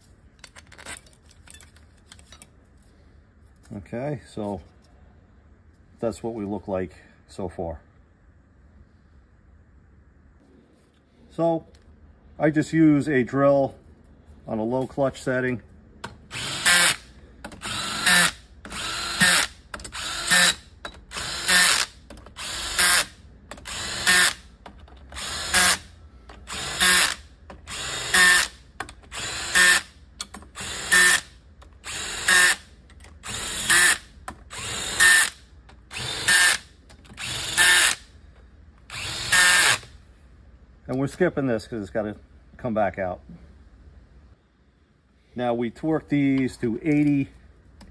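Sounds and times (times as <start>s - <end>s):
cordless drill bursts: 16.3s - 24.5s, 25.2s - 29.9s, 30.5s - 32.6s, 33.2s - 38.1s, 38.9s - 39.9s.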